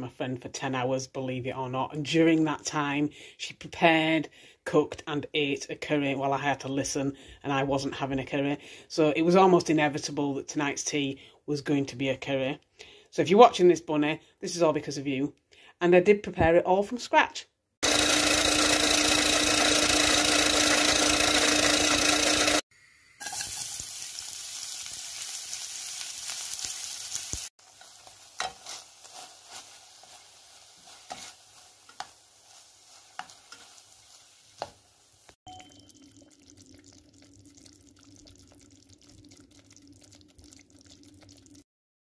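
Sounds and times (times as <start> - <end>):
food chopper motor whirring: 17.8 - 22.6
food sizzling in frying pan: 23.0 - 41.6.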